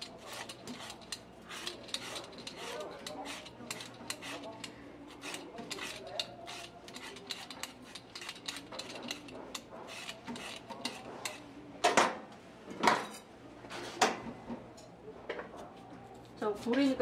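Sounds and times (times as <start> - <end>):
peeler scraping potato: 0.0 - 11.4.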